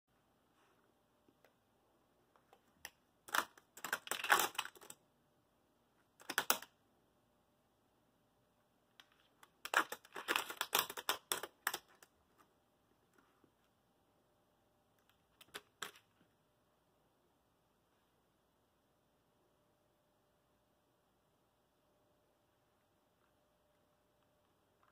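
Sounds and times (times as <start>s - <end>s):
laptop keys clattering: 2.6s - 5.0s, 6.2s - 6.7s, 9.0s - 12.1s, 15.1s - 16.1s.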